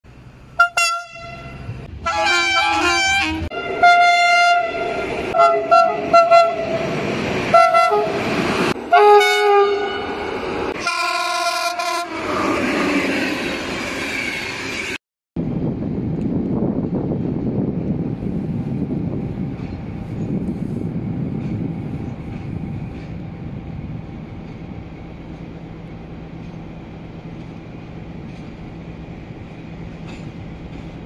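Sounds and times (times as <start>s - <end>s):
rail running noise: 0.1s - 31.0s
train horn blasts: 0.6s - 6.8s, 7.5s - 10.2s, 10.8s - 12.2s.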